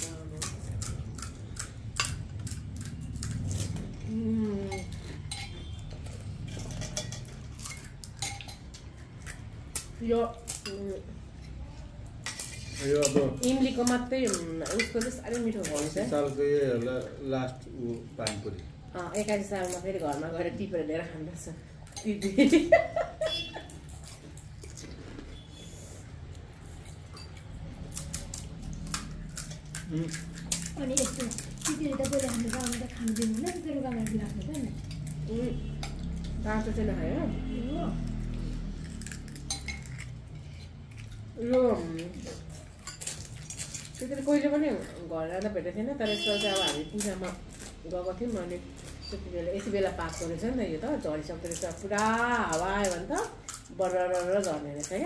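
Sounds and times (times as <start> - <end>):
metal spoons clinking on bowls: 0.0 - 3.8, 4.4 - 16.8, 21.7 - 24.7, 26.6 - 36.4, 38.1 - 45.0, 46.1 - 55.0
crunching and chewing: 0.0 - 4.1, 23.7 - 36.4, 38.0 - 45.0
low background hum: 0.0 - 55.0.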